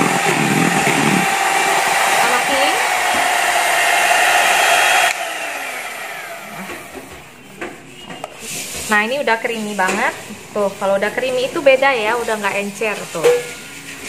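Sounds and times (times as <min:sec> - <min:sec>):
electric hand mixer running: 0:00.0 - 0:07.1.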